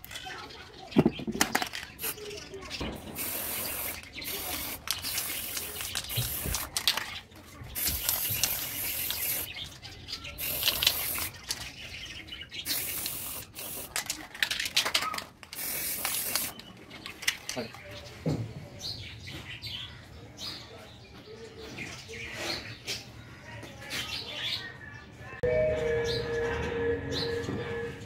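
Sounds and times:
spray paint can hissing: 1.6s - 2.2s, 3.0s - 7.0s, 7.8s - 9.6s, 10.4s - 11.6s, 12.6s - 14.7s, 15.5s - 16.6s.

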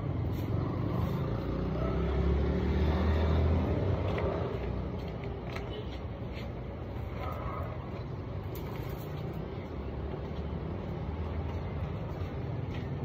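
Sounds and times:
broom and dustpan scraping: 0.0s - 1.4s.

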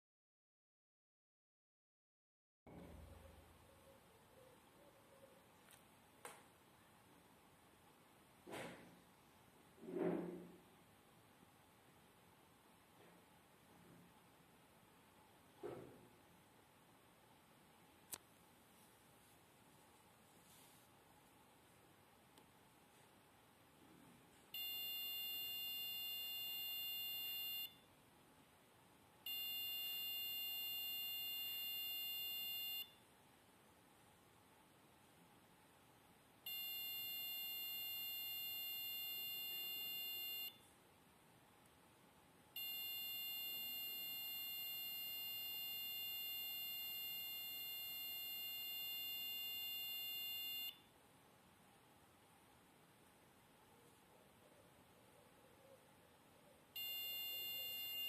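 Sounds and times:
high-pitched electronic buzzer beep: 24.6s - 27.8s, 29.3s - 33.0s, 36.5s - 40.6s, 42.6s - 50.8s, 56.8s - 58.0s.

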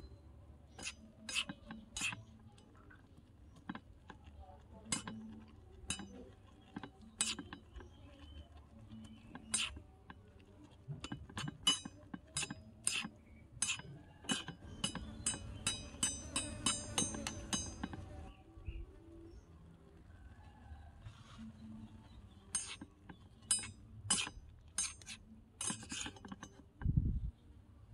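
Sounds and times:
metal spoon scraping metal wok: 0.7s - 2.9s, 3.6s - 18.3s, 22.5s - 26.6s
ringing metal taps: 0.7s - 18.3s, 22.4s - 27.0s.

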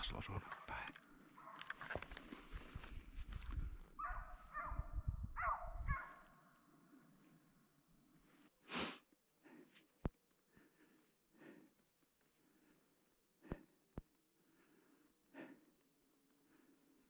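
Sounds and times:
hound barking: 1.4s - 1.8s, 4.0s - 6.3s.

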